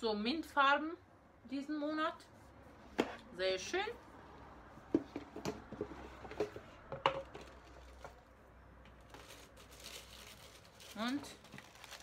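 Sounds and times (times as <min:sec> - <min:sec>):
packaging clicks and rustling: 0:08.9 - 0:12.0.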